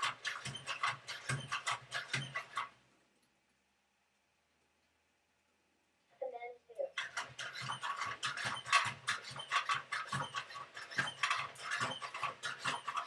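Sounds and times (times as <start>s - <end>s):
robot joint motors whirring: 7.0s - 13.0s.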